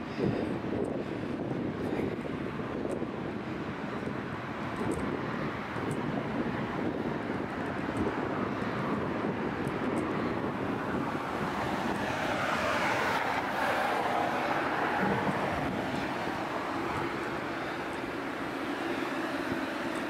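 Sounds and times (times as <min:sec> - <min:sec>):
city traffic hum: 0:00.0 - 0:20.0
vehicle passing: 0:06.4 - 0:20.0.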